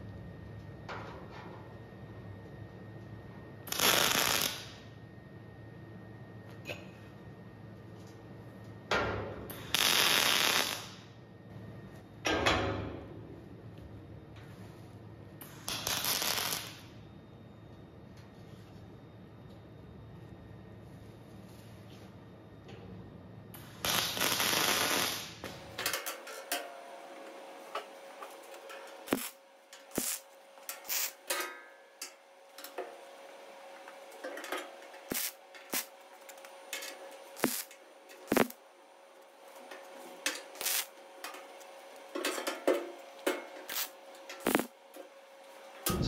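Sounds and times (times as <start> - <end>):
welding arc crackling: 3.7 - 4.9, 9.5 - 11.1, 15.4 - 16.9, 23.6 - 25.6, 28.5 - 31.3, 35.0 - 38.6, 40.3 - 41.0, 43.6 - 44.8.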